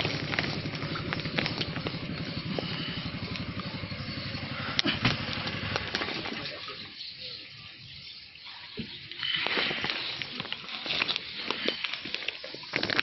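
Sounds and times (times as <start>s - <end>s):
low repeating pulse: 0.0s - 6.0s
water sloshing and splashing: 0.0s - 13.0s.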